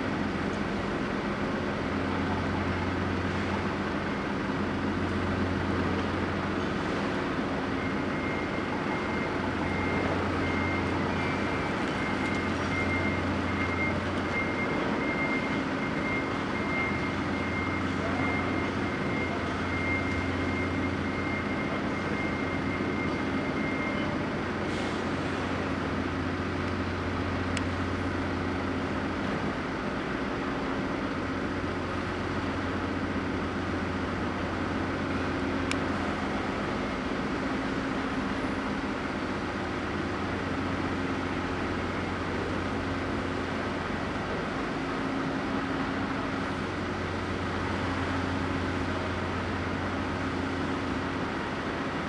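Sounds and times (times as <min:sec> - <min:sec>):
ship diesel engine drone: 0:00.0 - 0:52.0.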